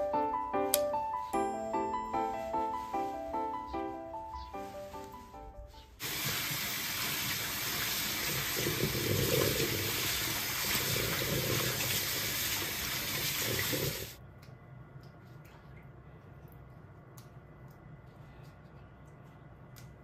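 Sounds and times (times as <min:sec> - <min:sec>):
tap water running into bowl: 0:06.0 - 0:14.1.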